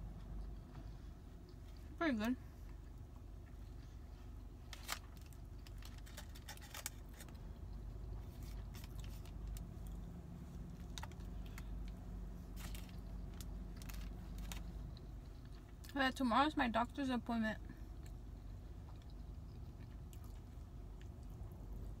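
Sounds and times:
steady low hum: 0.0s - 22.0s
chewing: 2.7s - 15.9s, 17.9s - 22.0s
aluminium foil crinkling: 4.7s - 7.4s, 12.5s - 14.8s.

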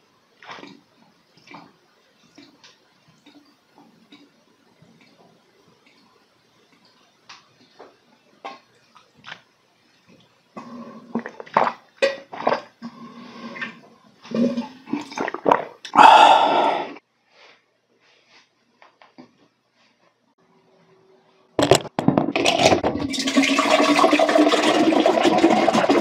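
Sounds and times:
person gulping and swallowing: 10.6s - 13.0s, 13.6s - 17.0s
breathy exhale: 15.9s - 17.0s.

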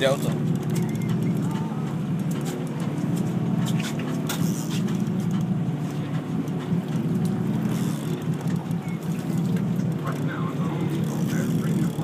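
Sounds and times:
boat engine humming: 0.0s - 12.0s.

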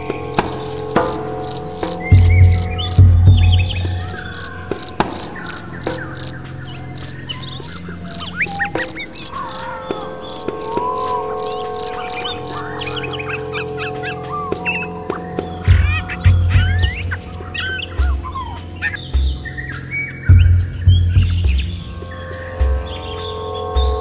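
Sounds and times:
low rumble: 0.0s - 9.2s, 10.1s - 22.8s
cricket chirping: 0.0s - 23.6s.

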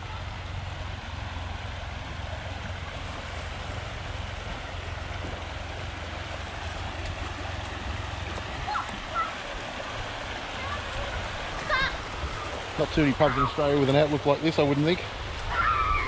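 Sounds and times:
river water rushing: 0.0s - 16.0s
wind rumble on microphone: 15.0s - 16.0s.

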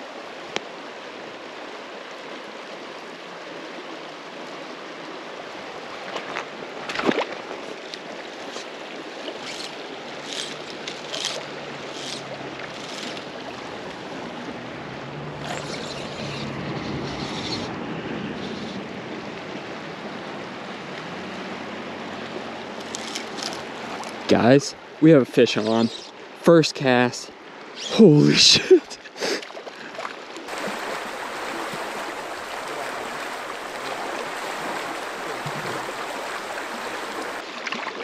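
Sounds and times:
river current running: 0.0s - 38.0s.

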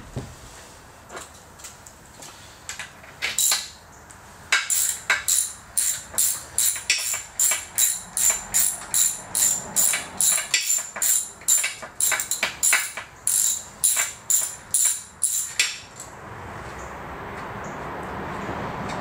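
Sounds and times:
ratchet wrench clicking: 3.2s - 3.8s, 4.5s - 15.8s.

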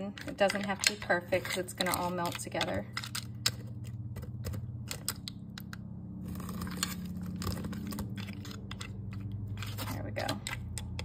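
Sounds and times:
metal spoon scraping dry pasta: 0.0s - 3.6s, 6.3s - 11.0s
steady low hum: 0.0s - 11.0s.

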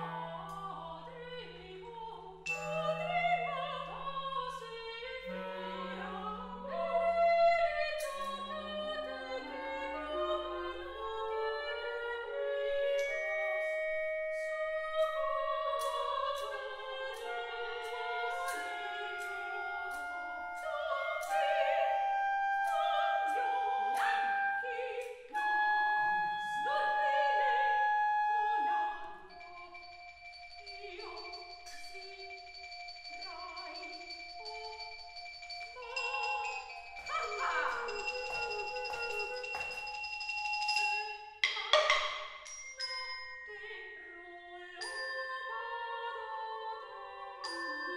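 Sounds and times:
bell-like mallet notes: 2.4s - 3.8s, 29.2s - 46.2s, 47.4s - 47.9s
clarinet holding notes: 5.0s - 29.8s, 35.7s - 40.0s
sopranos singing nonsense syllables: 14.4s - 28.8s
sharp percussive taps: 36.5s - 42.7s.

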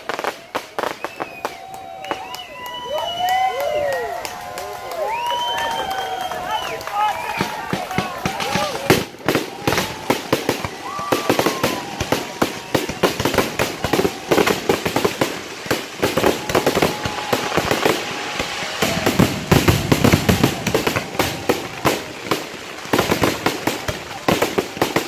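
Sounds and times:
fireworks bangs and crackles: 0.0s - 25.0s
deep fireworks booms: 7.3s - 25.0s.

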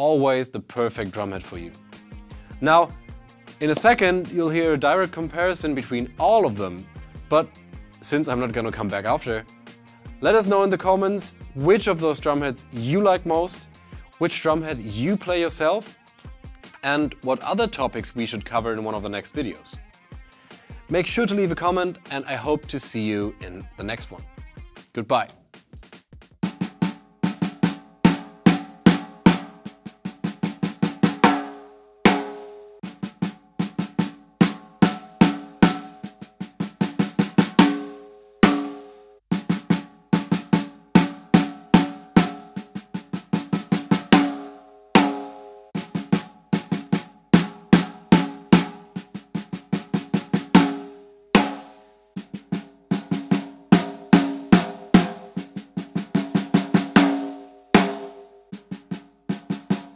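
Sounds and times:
snare drum played with sticks: 3.6s - 6.3s, 25.6s - 59.9s.

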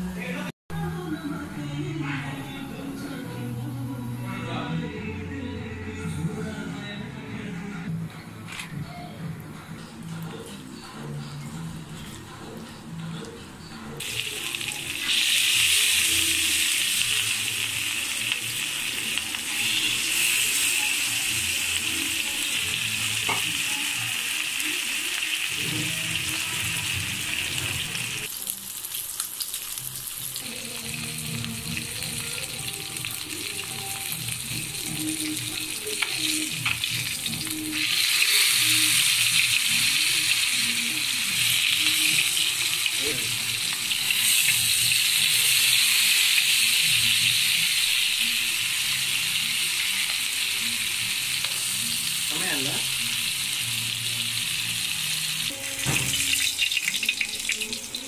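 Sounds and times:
fish sizzling in oil: 14.0s - 58.0s.

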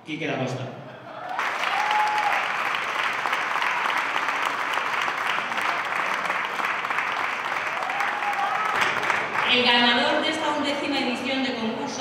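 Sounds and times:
crowd applauding: 1.2s - 9.8s.

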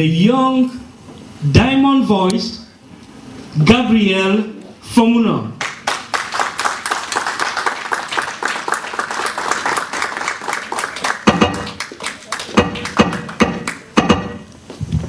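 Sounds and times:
audience clapping: 5.6s - 14.0s
music with a steady beat: 11.3s - 11.7s, 12.6s - 14.5s.

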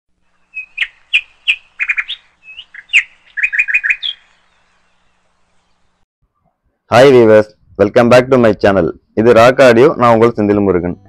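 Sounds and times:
bird-like chirps: 0.3s - 6.0s.

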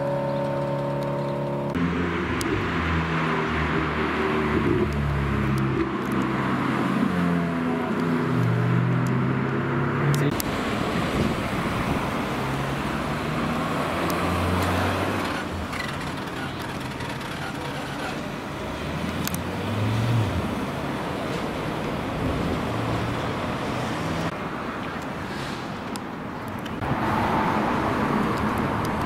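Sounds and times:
sports car engines revving: 0.0s - 24.4s
road noise rush: 0.0s - 29.0s.

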